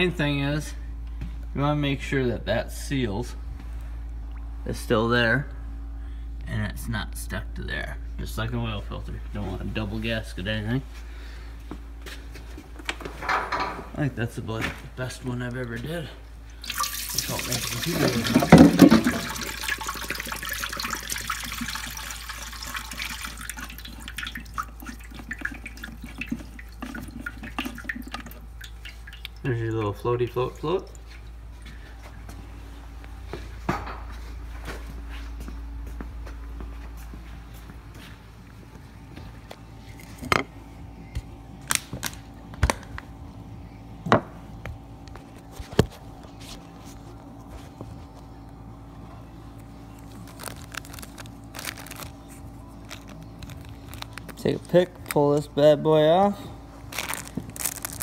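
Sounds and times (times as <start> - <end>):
fuel trickling into a pan: 16.6 - 30.0, 50.0 - 52.2, 56.8 - 58.0.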